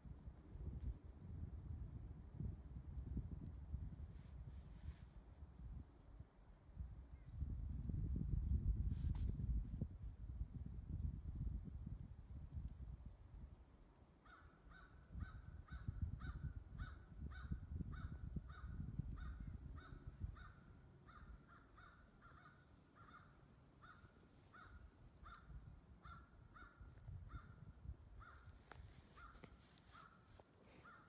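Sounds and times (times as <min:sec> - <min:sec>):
distant animal harsh calls: 0:19.8 - 0:27.5.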